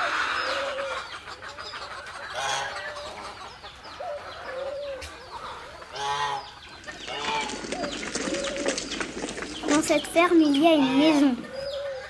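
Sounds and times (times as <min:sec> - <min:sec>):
hen cackling: 0:00.0 - 0:08.8
hens clucking: 0:00.0 - 0:12.0
small birds chirping: 0:00.0 - 0:12.0.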